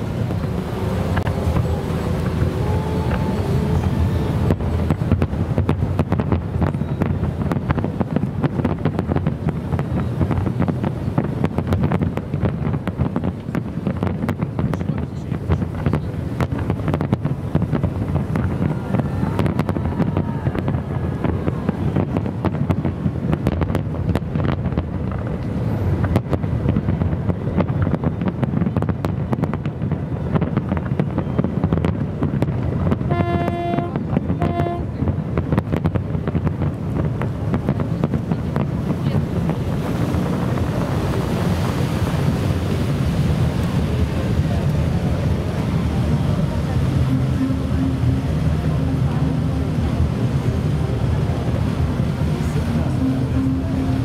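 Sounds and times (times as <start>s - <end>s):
distant fireworks bangs and crackles: 0.0s - 54.0s
wind on microphone: 0.0s - 54.0s
horn blasts: 33.0s - 35.0s.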